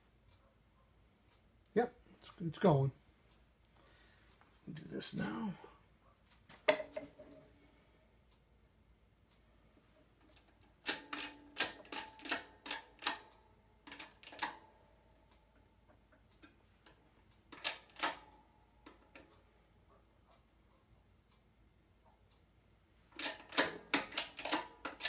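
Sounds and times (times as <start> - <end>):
hydraulic press metallic clicks: 10.4 - 14.6, 23.2 - 25.0.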